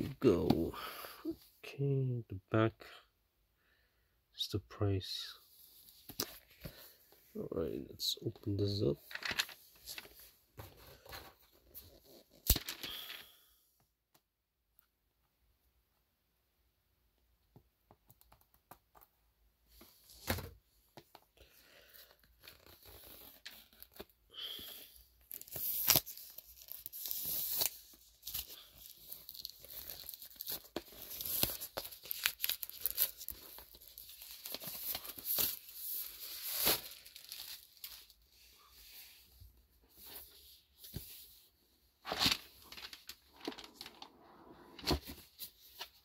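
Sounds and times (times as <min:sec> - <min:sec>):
tissue paper rustling: 0:25.3 - 0:38.2, 0:42.0 - 0:44.1.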